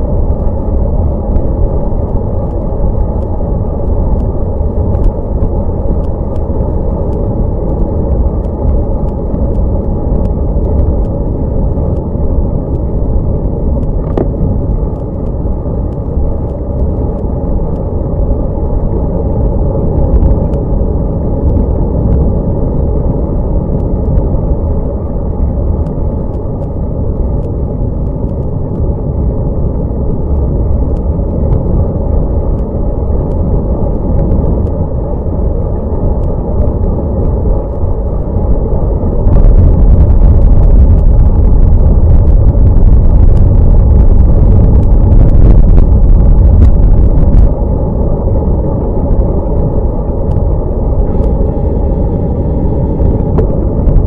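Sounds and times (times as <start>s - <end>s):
wind buffeting camera microphone: 0.0s - 54.0s.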